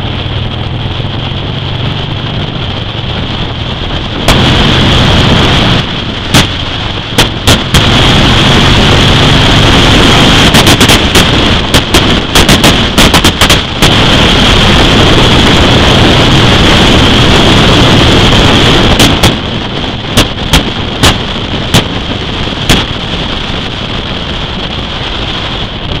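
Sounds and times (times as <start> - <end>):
wind buffeting microphone: 0.0 - 26.0
sharp pops and clicks: 4.2 - 4.6, 6.3 - 8.1, 10.1 - 14.3, 18.9 - 23.1.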